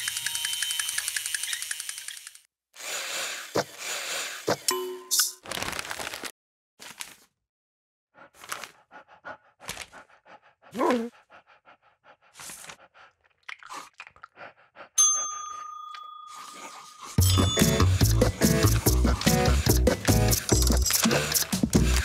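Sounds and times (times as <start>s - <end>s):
bell ding: 15.0s - 16.6s, 17.2s - 18.1s
music with steady bass: 17.2s - 22.0s
marker scribbling on paper: 17.8s - 22.0s.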